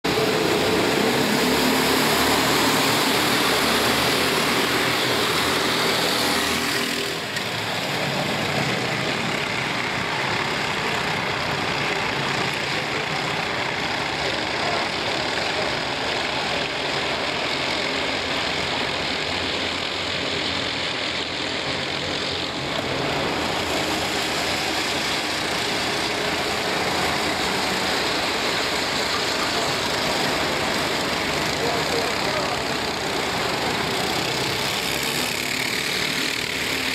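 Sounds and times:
racing kart engines: 0:00.0 - 0:36.9.

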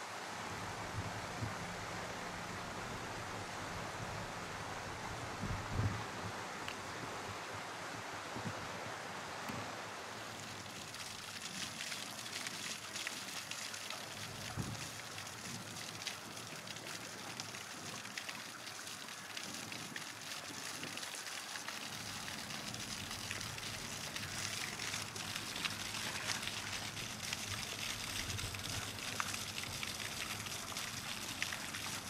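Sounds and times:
fountain spray splashing: 0:09.8 - 0:32.0.

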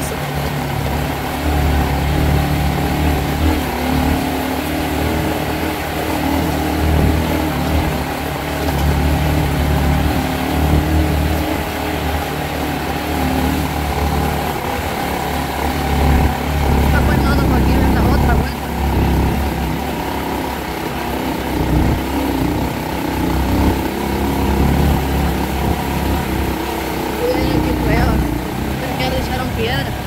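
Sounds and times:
motorcycle engine running: 0:00.0 - 0:30.0
steady rushing noise: 0:00.0 - 0:30.0.

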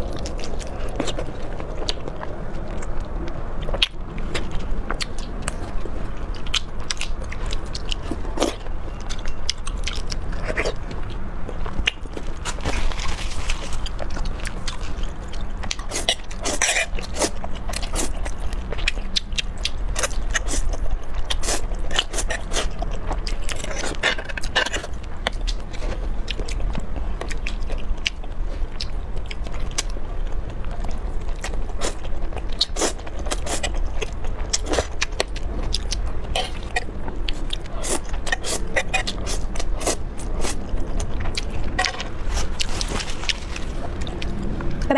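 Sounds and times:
steady low hum: 0:00.0 - 0:44.9
noodle slurping and chewing: 0:11.6 - 0:26.6, 0:30.7 - 0:44.5.

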